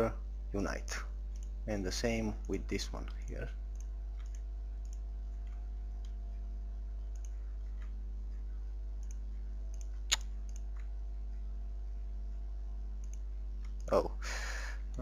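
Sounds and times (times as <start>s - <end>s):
low electrical hum: 0.0s - 15.0s
computer mouse clicking: 1.3s - 1.6s, 3.7s - 6.2s, 7.1s - 8.0s, 9.0s - 10.9s, 13.0s - 13.9s.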